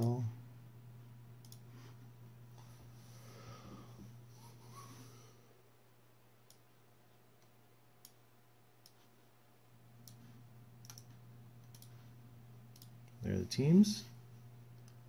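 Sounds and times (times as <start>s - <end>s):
low steady hum: 0.0s - 15.0s
computer mouse clicks: 1.4s - 1.7s, 8.8s - 9.1s, 10.0s - 12.1s, 12.7s - 13.2s.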